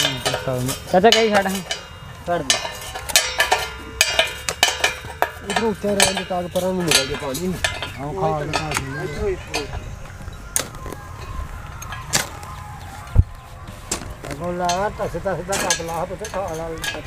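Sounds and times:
people talking: 0.0 - 2.7, 5.3 - 17.0.

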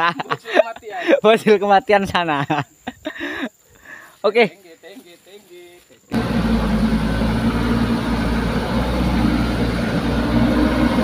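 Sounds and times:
truck engine running: 6.1 - 11.0.

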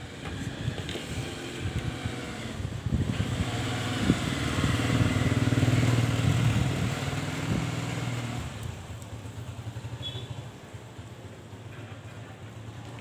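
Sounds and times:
vehicle engine passing by: 0.0 - 10.0.

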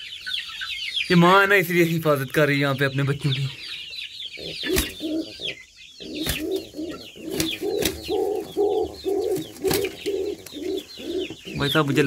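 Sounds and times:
high bird chirping: 0.0 - 12.0
birds short low calls: 2.7 - 12.0.

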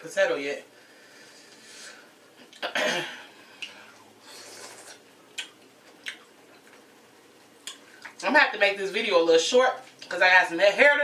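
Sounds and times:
person eating close-up: 3.5 - 8.2
breathy mouth noise: 3.6 - 5.0.

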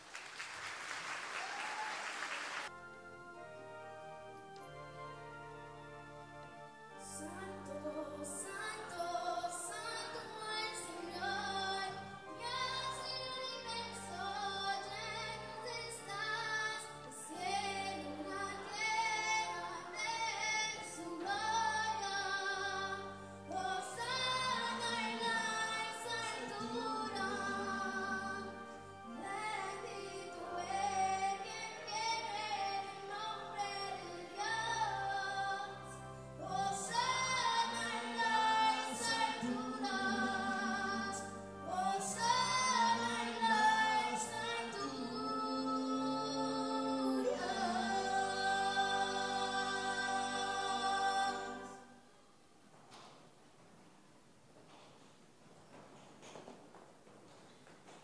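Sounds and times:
electronic organ bass notes: 2.7 - 9.2, 21.0 - 38.6
woman singing with vibrato: 7.0 - 52.0.

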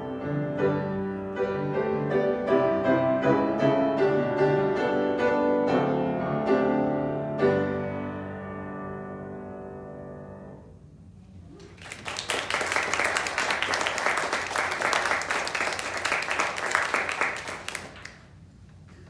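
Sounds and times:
piano chord ringing: 0.0 - 10.8
audience clapping: 11.6 - 18.4.

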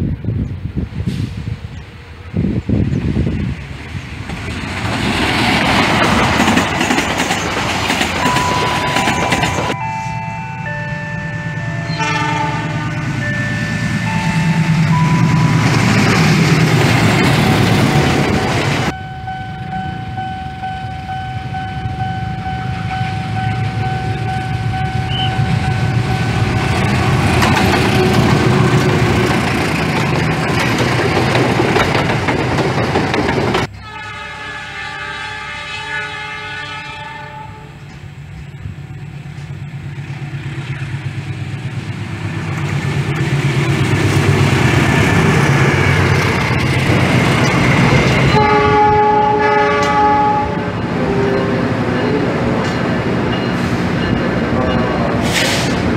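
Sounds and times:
train rumbling on rails: 0.0 - 55.9
locomotive air horn: 9.9 - 15.7, 22.8 - 29.2, 33.7 - 37.8, 48.2 - 52.3.

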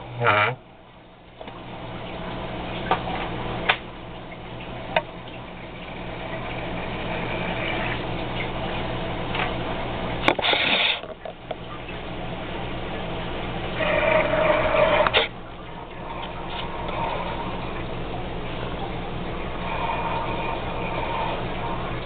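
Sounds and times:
steady low hum: 0.0 - 22.0
water bubbling in tank: 0.0 - 22.0
water gushing: 1.3 - 22.0.

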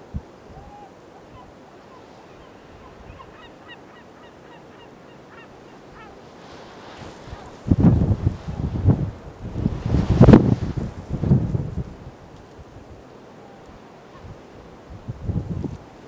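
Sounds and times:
gulls calling: 0.0 - 10.6
steady outdoor hiss: 0.0 - 16.0.

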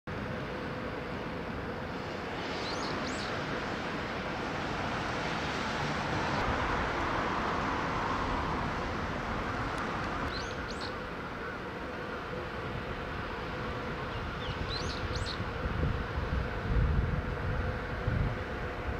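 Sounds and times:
distant welding hiss: 0.1 - 18.9
small bird chirping: 2.6 - 3.4, 10.3 - 11.0, 14.4 - 15.4.

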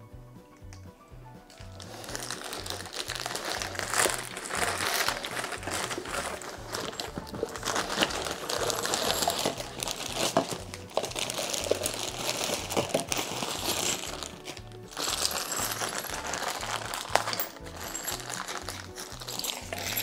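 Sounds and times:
background music with bass line: 0.0 - 20.0
plastic wrap crinkling: 1.5 - 20.0
plastic parts clicking: 2.6 - 15.6.

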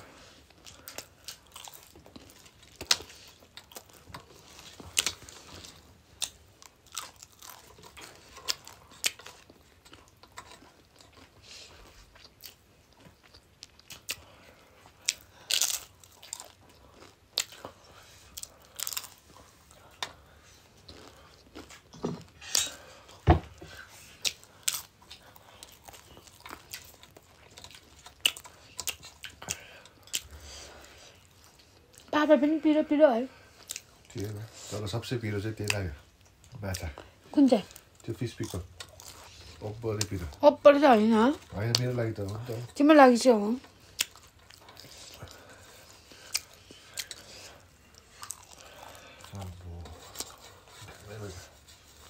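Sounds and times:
crisp food crunching: 0.5 - 20.2, 24.1 - 30.4, 43.6 - 52.0.

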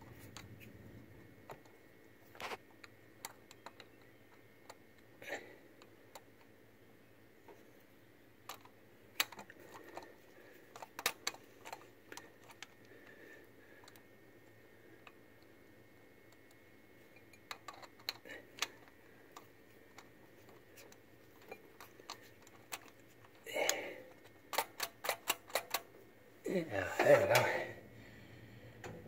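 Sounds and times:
small metallic clicks and taps: 1.4 - 5.1, 8.4 - 13.2, 16.3 - 23.4, 24.1 - 25.9.

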